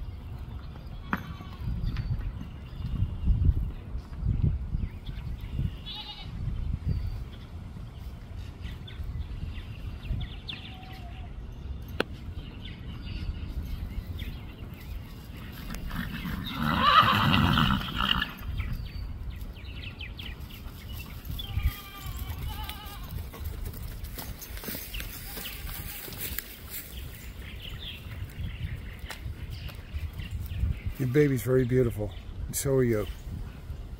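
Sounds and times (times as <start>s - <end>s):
horse whinnying: 15.7s - 18.5s.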